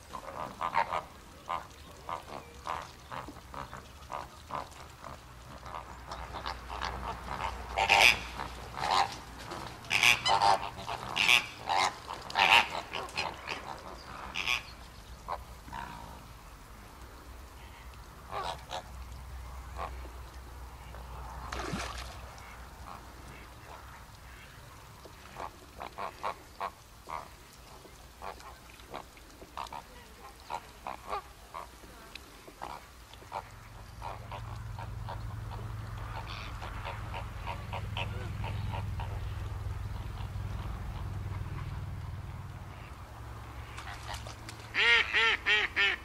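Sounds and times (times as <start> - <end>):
flamingos honking: 0.2 - 4.8, 5.6 - 9.2, 9.8 - 14.7, 32.6 - 41.8, 42.7 - 46.0
steady low rumble: 32.6 - 43.8.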